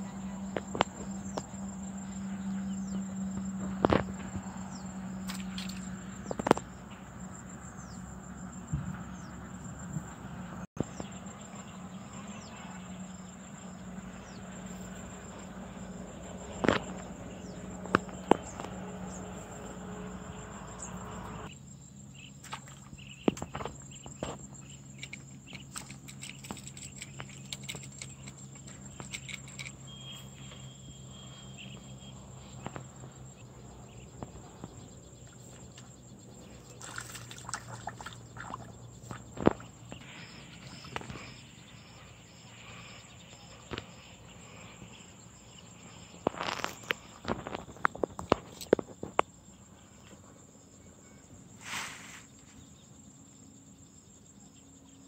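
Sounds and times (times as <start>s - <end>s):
high-pitched insect drone: 23.6s - 36.2s.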